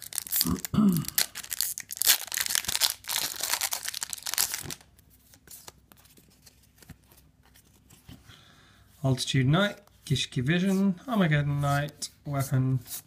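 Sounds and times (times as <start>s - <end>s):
foil wrapper tearing and crinkling: 0.0s - 4.9s.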